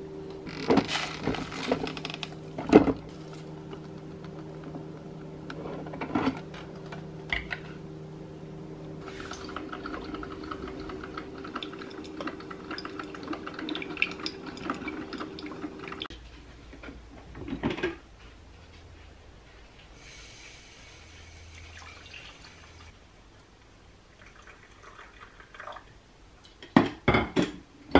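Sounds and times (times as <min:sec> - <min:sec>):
steady hum: 0:00.0 - 0:17.3
coffee maker sputtering: 0:09.0 - 0:16.0.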